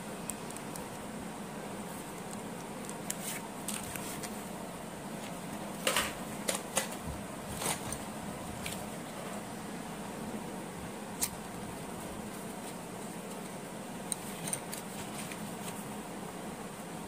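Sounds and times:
steady low hum: 0.0 - 17.0
pencils clicking and rustling: 0.2 - 1.0, 2.0 - 4.5, 5.2 - 9.2, 12.3 - 15.9.

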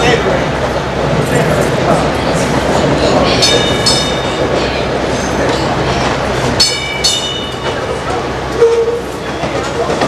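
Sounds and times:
streetcar rumbling over tracks: 0.0 - 10.0
streetcar gong double dings: 3.1 - 5.0, 6.6 - 9.5.

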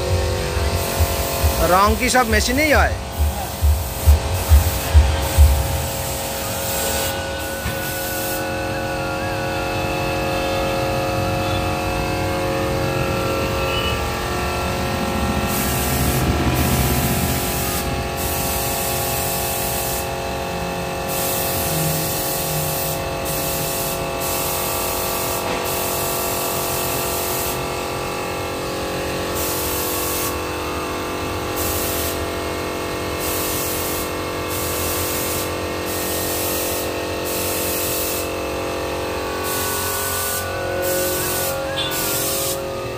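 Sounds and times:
steady hum: 0.0 - 24.5
paint spray gun hissing: 0.6 - 8.6, 15.0 - 27.8, 29.3 - 30.4, 31.5 - 32.3, 33.2 - 38.4, 39.4 - 42.7.

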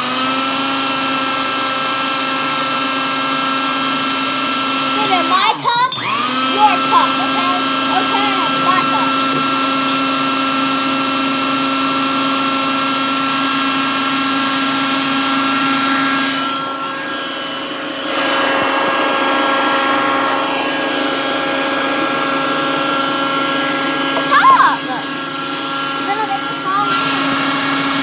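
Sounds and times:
food processor motor whining: 0.0 - 28.0.

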